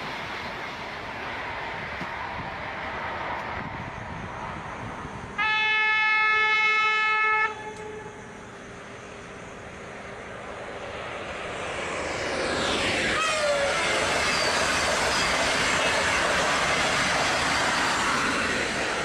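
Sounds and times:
high-speed train rushing: 0.0 - 19.0
train horn blast: 5.4 - 8.3, 13.2 - 13.7.

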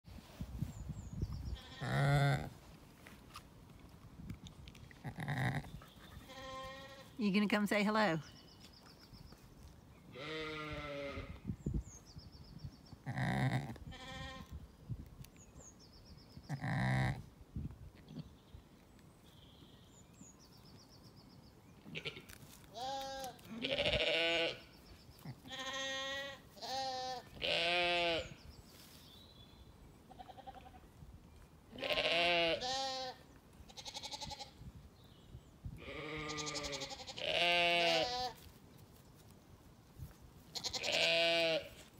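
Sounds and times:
sheep bleating: 1.6 - 2.5, 10.2 - 11.4, 22.8 - 24.6, 25.4 - 28.3, 31.8 - 33.2, 33.8 - 34.5, 35.8 - 38.4, 40.6 - 41.8
small bird singing: 8.2 - 10.5.

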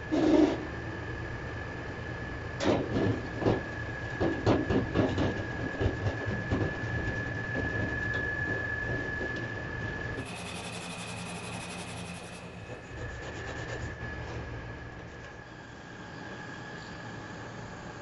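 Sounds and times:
steady high whine: 5.3 - 18.0.

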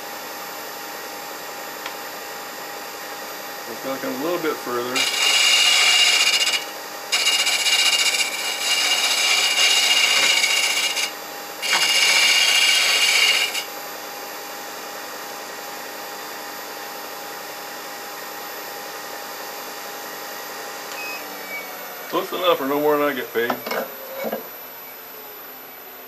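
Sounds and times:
machine hum: 1.8 - 13.7
lathe tool scraping wood: 4.0 - 13.7.

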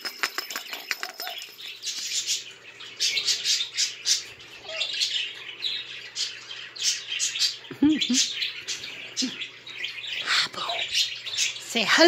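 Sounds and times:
parrot squawking and chattering: 3.0 - 11.7.

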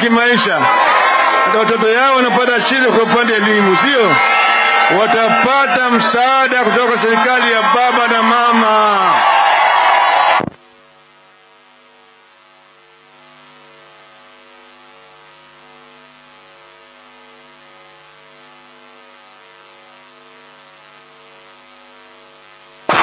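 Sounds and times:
electrical hum and buzz: 0.0 - 23.0.

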